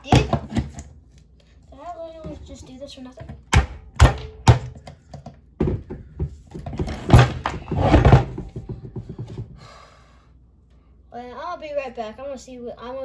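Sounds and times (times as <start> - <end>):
thumps and clattering on wooden table: 3.2 - 9.6.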